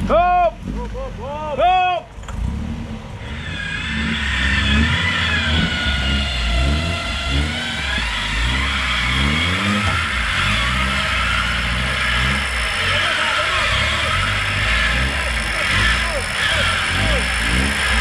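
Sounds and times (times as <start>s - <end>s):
engine revving: 0.0s - 18.0s
high whine: 3.0s - 18.0s.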